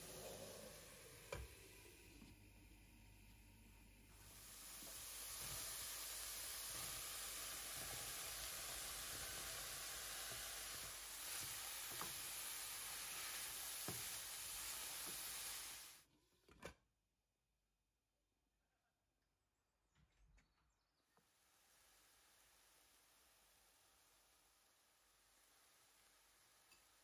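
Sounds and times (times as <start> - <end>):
vegetables sizzling in a pan: 0.0 - 2.3, 3.0 - 16.0, 21.3 - 27.0.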